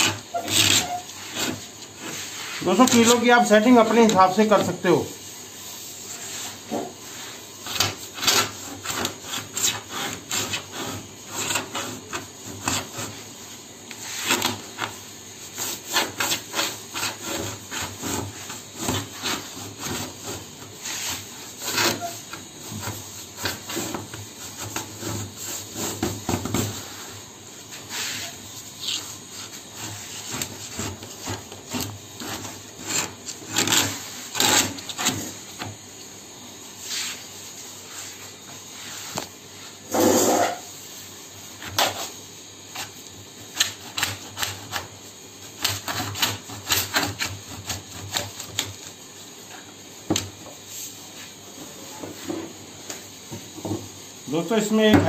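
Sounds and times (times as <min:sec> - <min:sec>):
needle scraping laminate: 0:00.0 - 0:05.0, 0:06.0 - 0:13.3, 0:13.9 - 0:35.7, 0:45.5 - 0:48.8.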